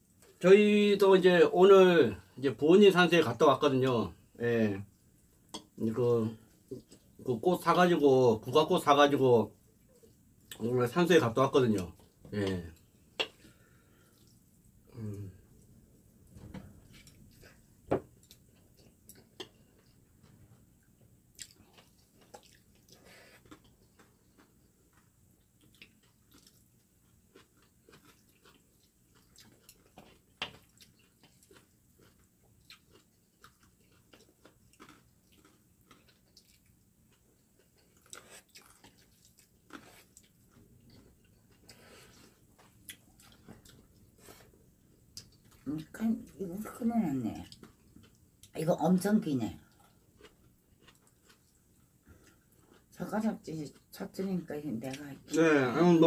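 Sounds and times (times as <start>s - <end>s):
chewing and slurping noodles: 21.4s - 44.6s.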